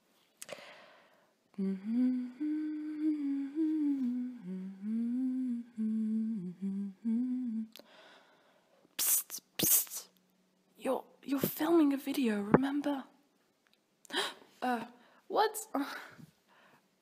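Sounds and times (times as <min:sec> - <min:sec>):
woman humming: 0:01.5 - 0:07.8.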